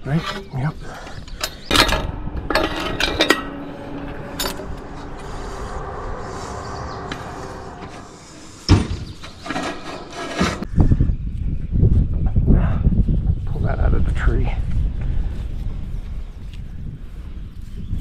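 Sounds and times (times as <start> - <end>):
metal tools clinking: 0.0 - 4.9
deep burst of noise: 1.4 - 9.1.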